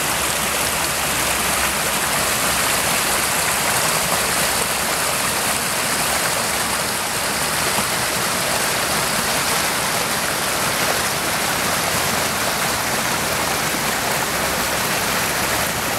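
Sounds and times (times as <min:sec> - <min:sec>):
stream rushing over log: 0:00.0 - 0:15.9.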